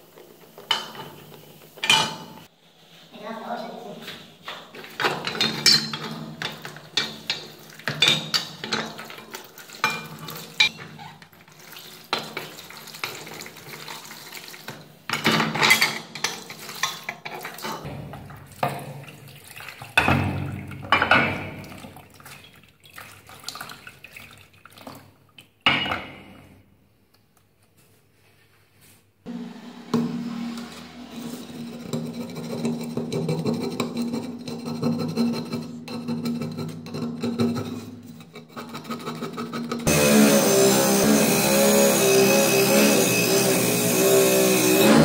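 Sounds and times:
liquid sloshing and splashing: 4.8s - 15.1s, 16.3s - 25.6s.

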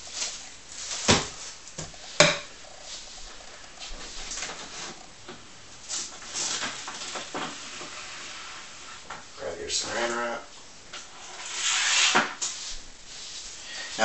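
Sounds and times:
plastic crinkling: 0.0s - 5.2s.

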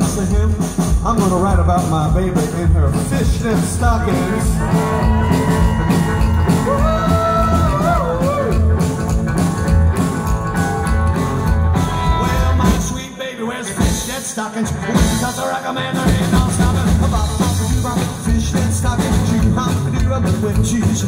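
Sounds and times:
rockabilly band playing live: 0.0s - 21.0s
bending electric guitar notes: 4.1s - 13.0s.

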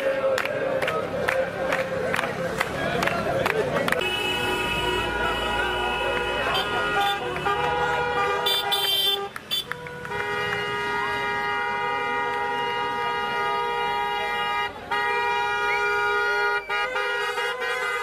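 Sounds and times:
car horns honking: 4.0s - 18.0s.

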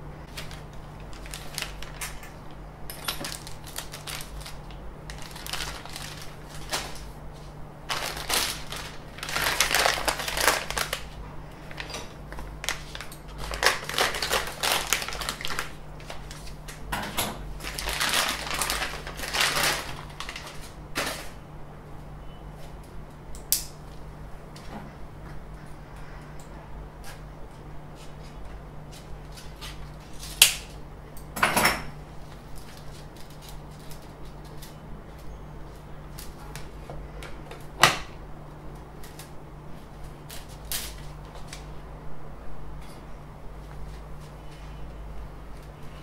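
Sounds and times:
low electrical hum: 0.0s - 46.0s
plastic packaging crinkling: 0.3s - 7.2s, 7.9s - 16.8s, 17.5s - 21.4s, 32.2s - 34.8s.

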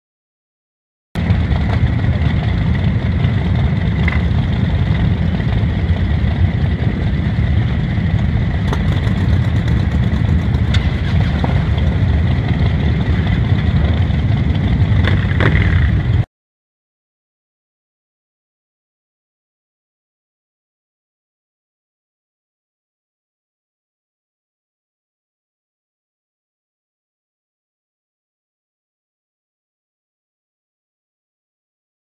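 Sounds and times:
motorcycles idling: 1.2s - 16.3s.

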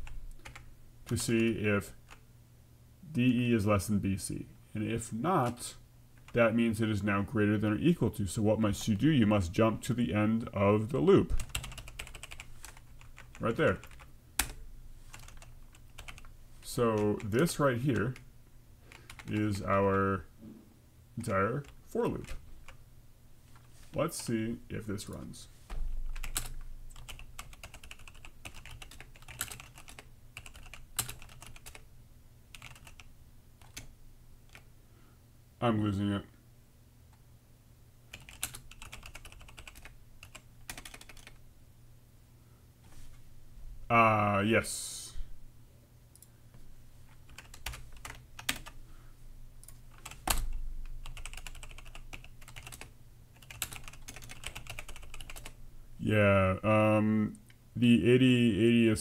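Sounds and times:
typing on computer keyboard: 0.0s - 1.3s, 11.4s - 16.3s, 18.9s - 19.4s, 26.2s - 31.8s, 32.5s - 33.9s, 38.1s - 41.4s, 47.3s - 48.8s, 49.6s - 55.5s.

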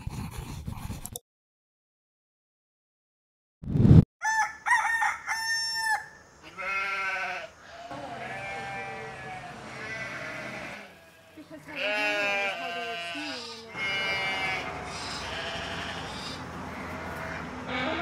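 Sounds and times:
rooster crowing: 4.2s - 6.2s
goat bleating: 6.4s - 18.0s.

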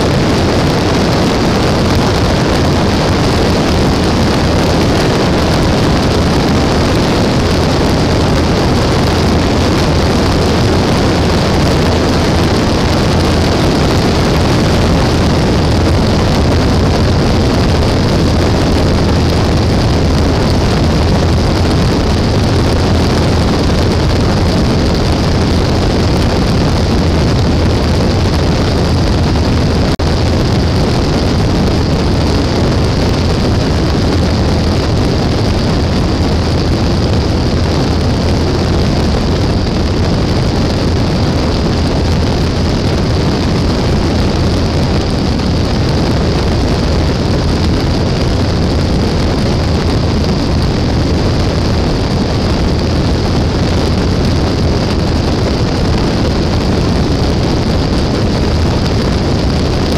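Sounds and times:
airflow rushing over microphone: 0.0s - 59.9s
airplane engine and propeller running: 0.0s - 59.9s.

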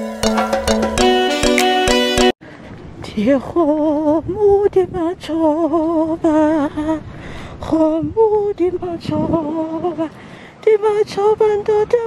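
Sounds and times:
person singing wordless melody: 3.0s - 12.0s.

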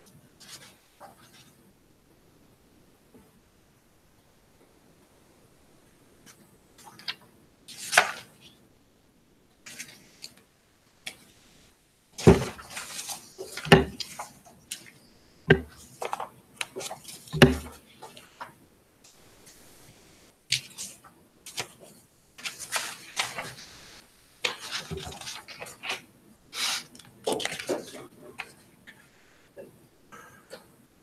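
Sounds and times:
papers rustling: 12.2s - 29.1s
hard objects knocking on table: 15.5s - 15.7s, 17.4s - 17.7s.

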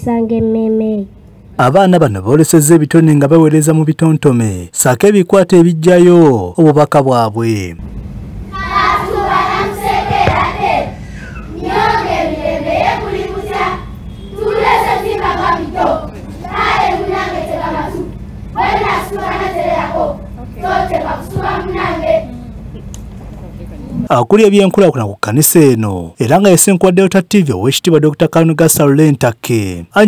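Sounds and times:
children chanting in unison: 8.5s - 22.4s.

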